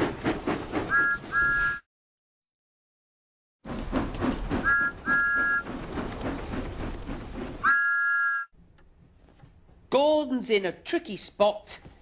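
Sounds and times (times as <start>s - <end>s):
cartoon steam train chuffing: 0.0s - 1.8s, 3.7s - 8.4s
two-note steam whistle: 4.6s - 5.6s, 7.6s - 8.5s.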